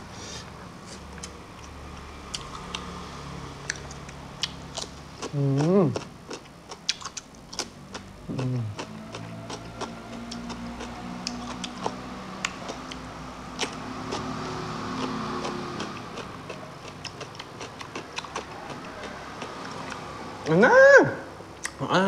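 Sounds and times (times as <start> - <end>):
man chewing and lip-smacking: 0.9 - 3.0, 3.6 - 20.6, 21.5 - 21.8
sharp mouth clicks: 3.6 - 7.7, 8.3 - 13.0, 21.6 - 21.8.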